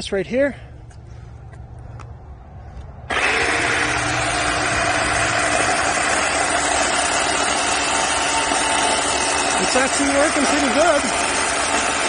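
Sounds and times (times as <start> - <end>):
electric chainsaw running: 3.1 - 12.0.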